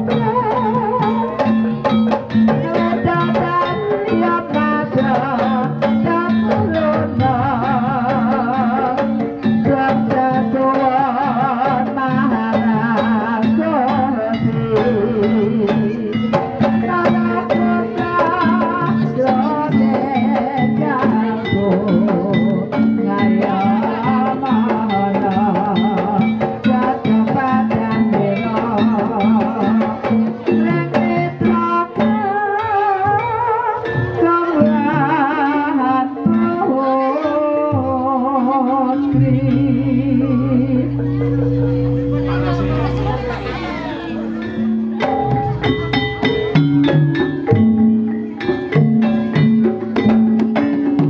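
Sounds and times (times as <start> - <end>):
drums and gong percussion: 0.0 - 51.0
wavering ornamented melody: 38.4 - 50.1
low held tone: 39.1 - 46.0.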